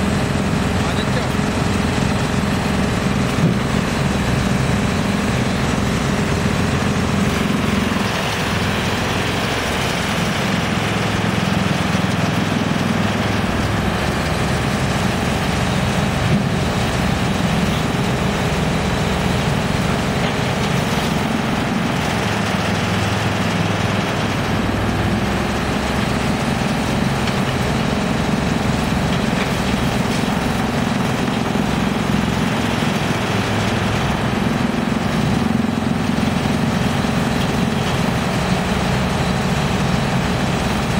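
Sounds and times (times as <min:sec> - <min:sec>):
excavator engine: 0:00.0 - 0:40.9
wood chipper motor running: 0:00.0 - 0:40.9.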